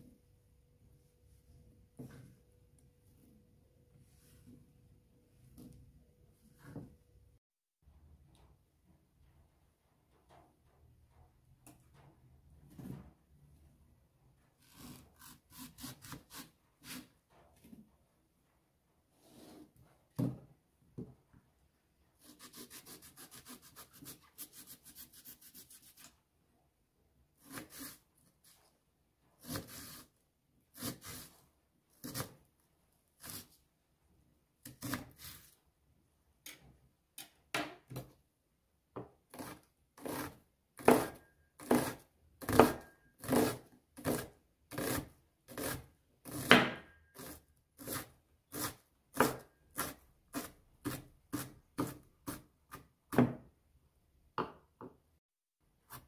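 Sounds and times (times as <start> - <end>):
knife chopping onion on board: 39.0 - 53.5.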